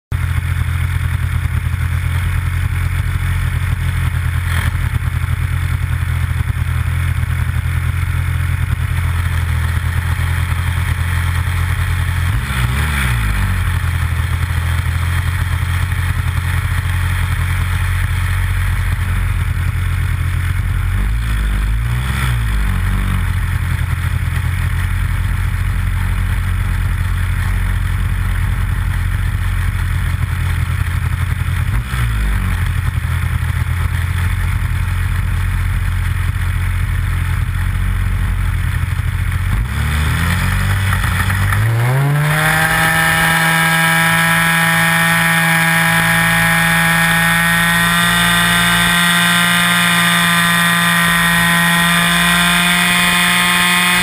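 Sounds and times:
model airplane engine running: 0:42.6 - 0:54.0.

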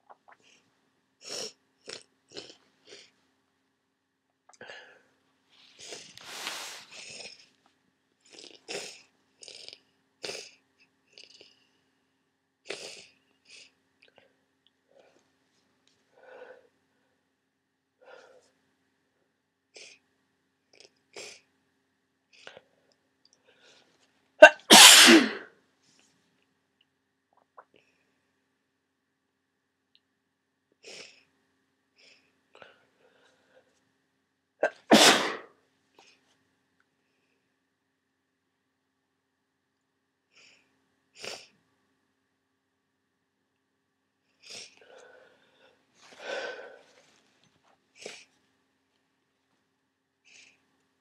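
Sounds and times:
faint breaths: 0:04.6 - 0:07.6, 0:13.0 - 0:17.3, 0:18.0 - 0:18.6, 0:32.0 - 0:33.9, 0:44.3 - 0:48.4
breathing through stuffed nose: 0:05.8 - 0:07.3, 0:44.4 - 0:47.2
person sniffing: 0:05.8 - 0:07.4, 0:24.4 - 0:25.4, 0:34.6 - 0:35.5, 0:44.4 - 0:47.0
person sneezing: 0:24.4 - 0:25.5, 0:34.6 - 0:35.5.

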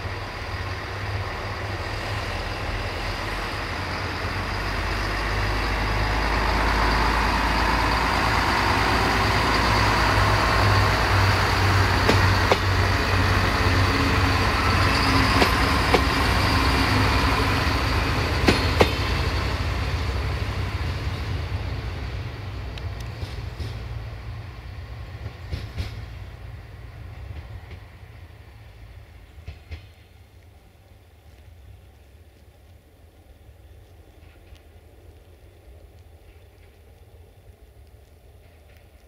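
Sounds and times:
train engine rumble: 0:00.0 - 0:39.0
train wheel clicks: 0:08.4 - 0:20.0, 0:22.7 - 0:24.0, 0:25.1 - 0:26.2, 0:29.3 - 0:30.1, 0:34.0 - 0:39.0.

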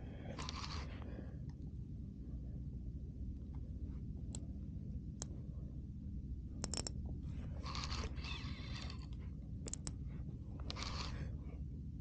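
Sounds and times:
fishing reel whirring: 0:00.4 - 0:00.9, 0:07.6 - 0:09.2, 0:10.7 - 0:11.2
sharp reel clicks: 0:10.7 - 0:11.2.

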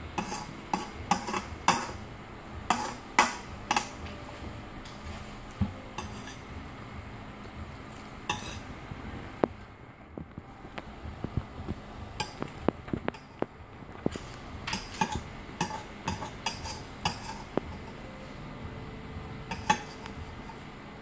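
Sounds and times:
metal spoon scraping a bowl: 0:00.2 - 0:02.0, 0:02.7 - 0:04.0, 0:06.0 - 0:06.5, 0:08.3 - 0:08.7, 0:14.1 - 0:18.0, 0:19.5 - 0:20.6.

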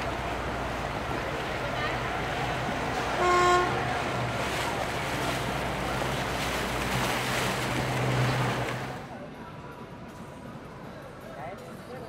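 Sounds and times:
motorboat engine running: 0:00.0 - 0:09.0
water splashing around hull: 0:00.0 - 0:09.1.

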